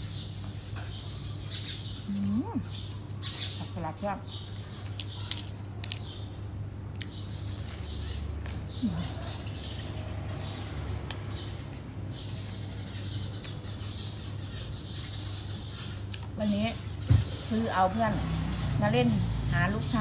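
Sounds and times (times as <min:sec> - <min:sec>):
chewing crisp raw vegetables: 0:02.2 - 0:09.6, 0:15.8 - 0:16.4.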